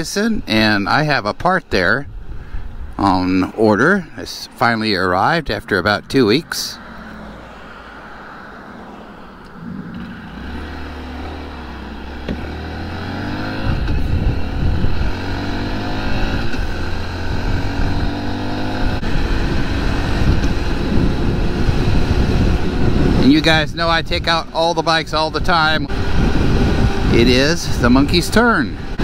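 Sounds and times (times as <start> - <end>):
small motorcycle engine accelerating: 9.6 - 23.2, 25.9 - 29.0.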